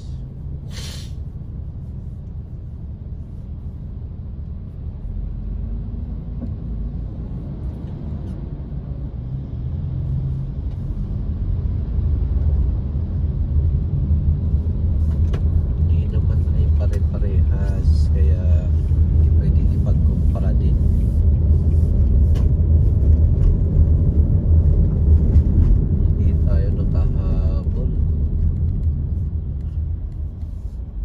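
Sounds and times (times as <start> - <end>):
car engine and road rumble: 0.0 - 31.0.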